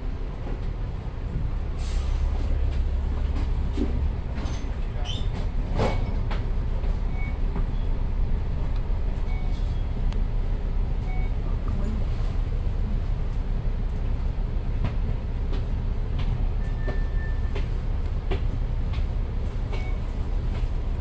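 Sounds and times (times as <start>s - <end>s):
bus engine idling: 0.0s - 21.0s
clicks and knocks from bus: 2.7s - 7.7s, 14.7s - 20.9s.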